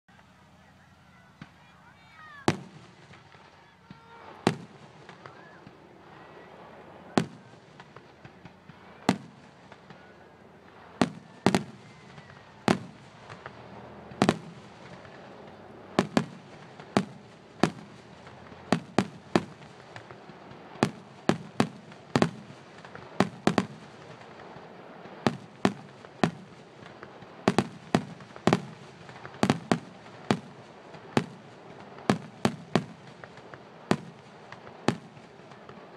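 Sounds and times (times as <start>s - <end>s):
firework shells bursting: 7.2s - 35.9s.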